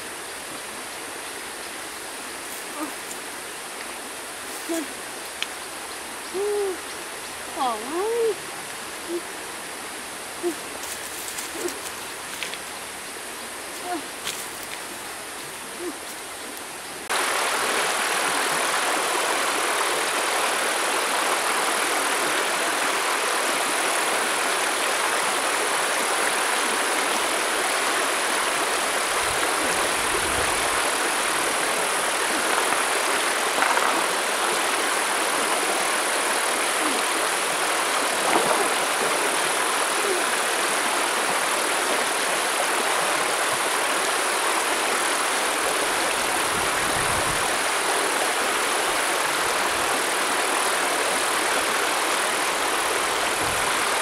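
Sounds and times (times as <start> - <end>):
stream rushing over stones: 0.0 - 54.0
water splashes: 25.4 - 42.1.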